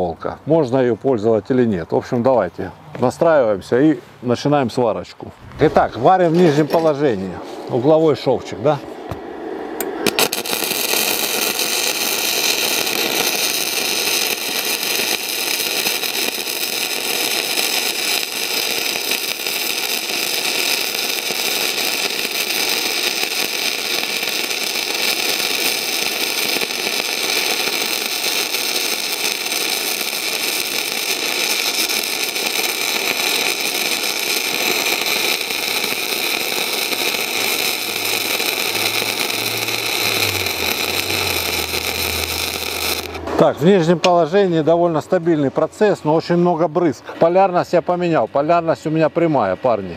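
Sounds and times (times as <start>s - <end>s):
crackling welding arc: 10.0s - 43.5s.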